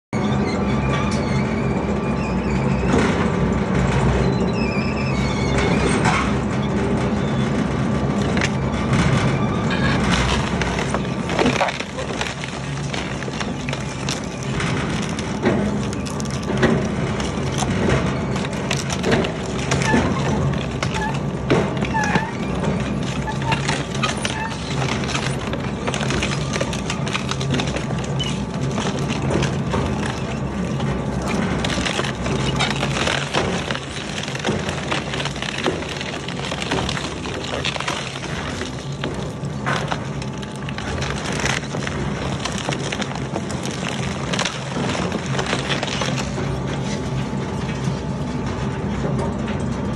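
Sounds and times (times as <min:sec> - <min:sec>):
shredder humming: 0:07.7 - 0:48.8
wooden frame cracking: 0:08.2 - 0:47.1.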